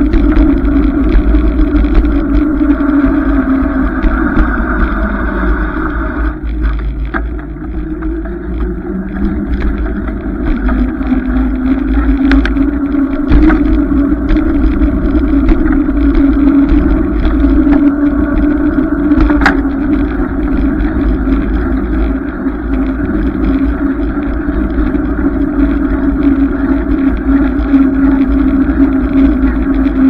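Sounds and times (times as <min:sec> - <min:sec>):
bicycle clicks and rattles: 0:00.0 - 0:05.0, 0:06.4 - 0:30.0
road noise: 0:00.0 - 0:30.0
wind buffeting: 0:00.0 - 0:30.0.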